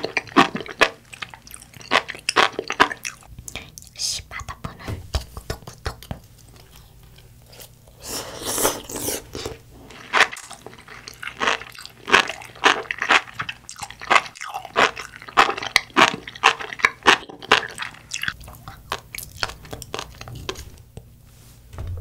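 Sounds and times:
seaweed being chewed: 0.0s - 3.3s, 8.7s - 20.9s.

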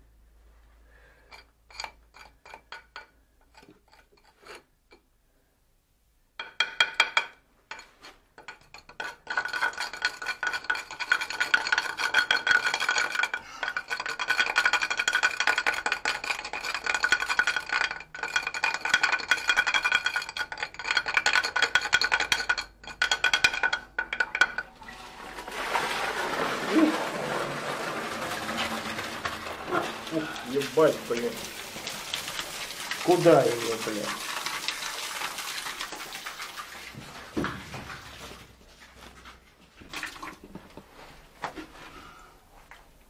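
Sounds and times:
scraping on metal: 24.2s - 31.6s.

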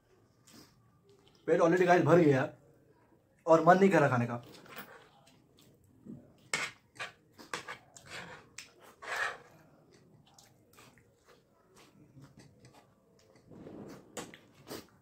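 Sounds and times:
people chewing: 0.3s - 1.5s, 4.4s - 15.0s
spoon on plates: 6.4s - 9.6s.

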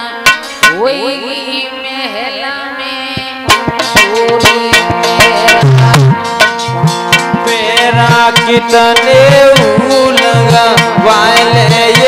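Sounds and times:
bending melody line: 3.2s - 12.0s
deep drum thumps: 3.5s - 12.0s
quick hand drum rhythm: 3.5s - 12.0s.

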